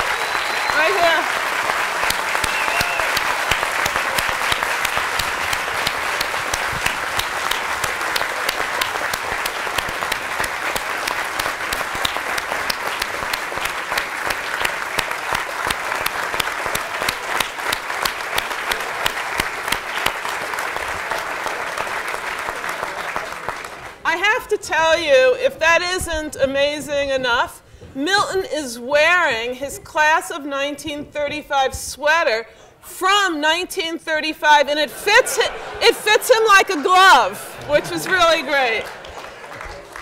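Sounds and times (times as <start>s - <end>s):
large audience applauding: 0.0s - 24.0s, 35.8s - 40.0s.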